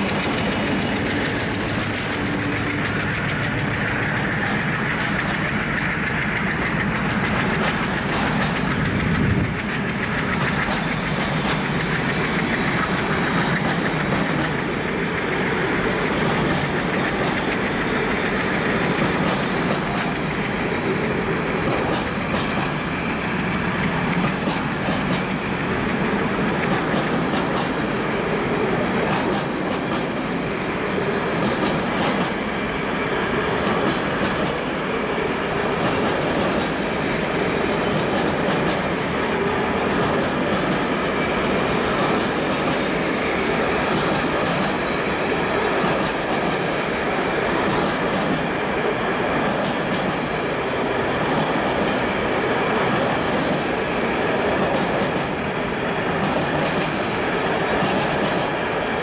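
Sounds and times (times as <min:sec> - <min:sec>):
wheels clicking over rail joints: 0:00.0 - 0:20.7, 0:21.6 - 0:22.9, 0:23.8 - 0:27.8
freight wagons rumbling on rails: 0:00.0 - 0:59.0.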